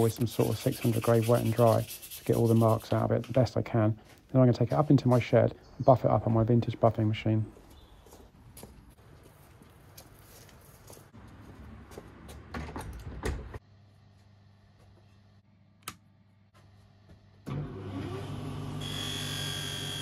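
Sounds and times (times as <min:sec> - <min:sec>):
footsteps: 0:07.5 - 0:12.9
electric motor humming and whining: 0:17.6 - 0:20.0.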